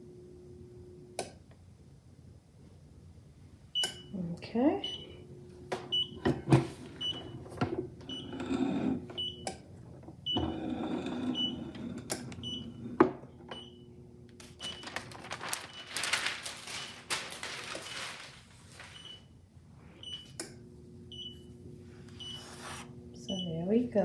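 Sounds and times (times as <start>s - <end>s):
paper rustling: 14.4s - 19.0s, 22.4s - 22.9s.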